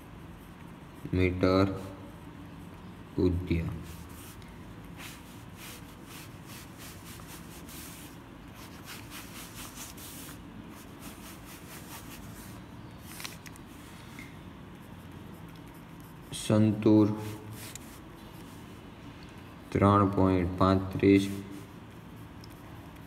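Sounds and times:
pen scratching on paper: 0.0s - 13.6s, 14.7s - 18.7s.

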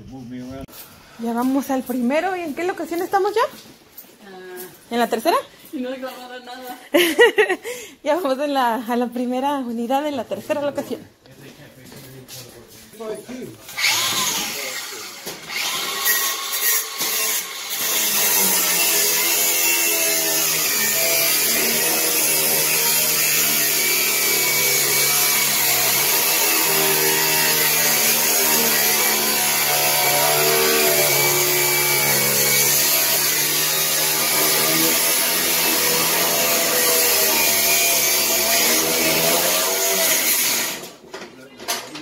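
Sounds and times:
angle grinder cutting metal: 13.7s - 41.0s.

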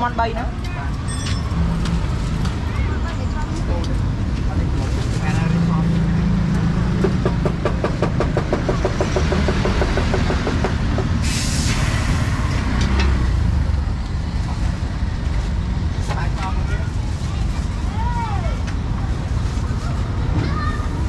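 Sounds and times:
street traffic: 0.0s - 21.0s
short loud hiss: 11.2s - 12.4s.

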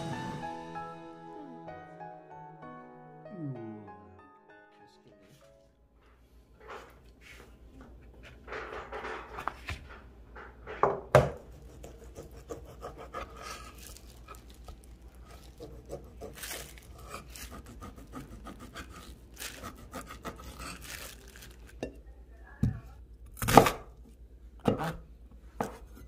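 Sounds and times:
knocks on cutting board: 10.8s - 11.4s
knife sawing through meat: 11.5s - 13.8s, 15.5s - 20.9s.

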